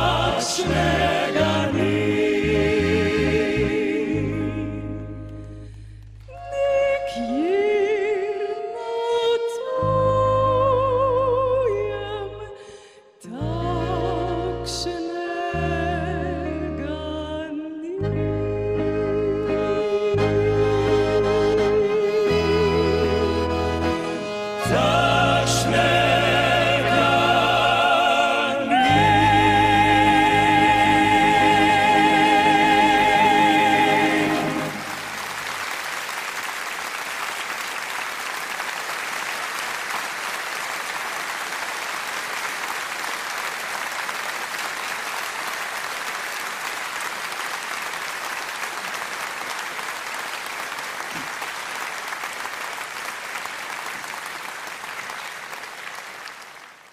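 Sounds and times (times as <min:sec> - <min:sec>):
vocal ensemble with band: 0:00.0 - 0:05.5, 0:24.5 - 0:35.2
audience applauding: 0:31.4 - 0:56.9.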